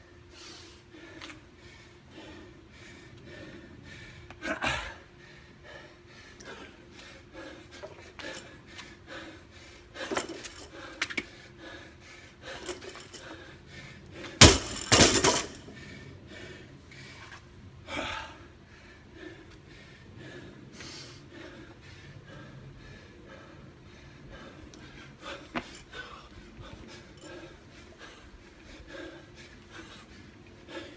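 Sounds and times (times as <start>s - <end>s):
barbell crashing onto concrete: 14.4s - 15.7s.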